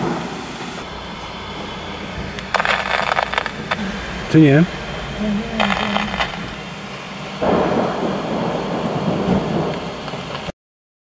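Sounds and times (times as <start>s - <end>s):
thunderclap rumbling: 0.0s - 10.5s
rain on a car windscreen: 2.0s - 10.5s.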